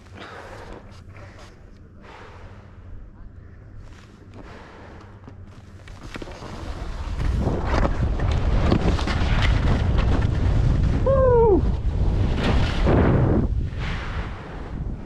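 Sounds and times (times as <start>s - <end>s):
skis scraping on snow: 5.6s - 11.0s
wind rushing over microphone: 6.5s - 15.0s.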